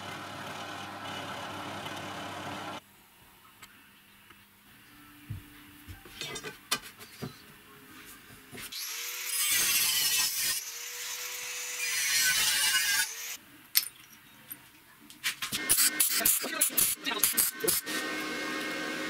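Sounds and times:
angle grinder cutting steel: 8.8 - 13.4.

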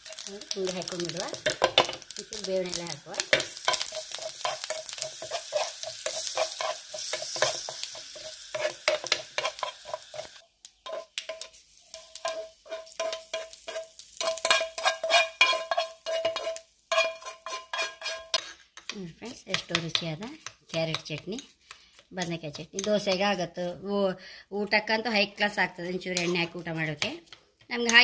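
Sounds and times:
spoon stirring in a pan: 0.0 - 23.4, 25.2 - 28.0
seeds sizzling in hot oil: 0.0 - 28.0
spoon scraping and clinking on pan: 1.3 - 2.1, 3.2 - 21.9, 26.0 - 28.0.

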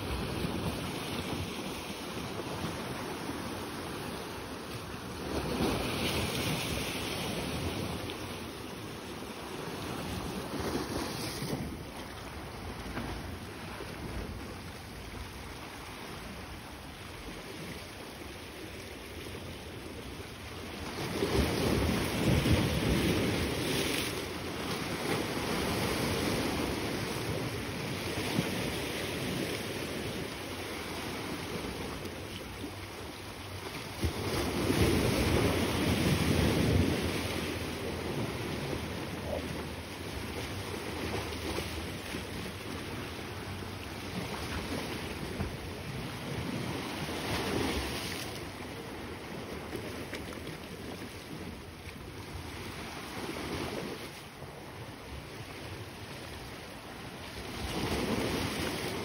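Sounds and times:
sea waves washing on rocks: 0.0 - 59.0.

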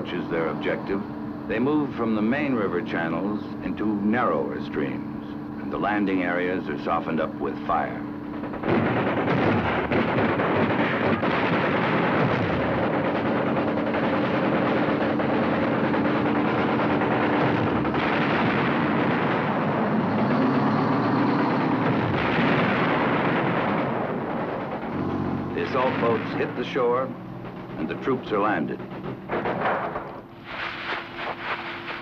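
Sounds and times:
boat engines droning: 0.0 - 32.0
machine-gun fire: 7.0 - 32.0.

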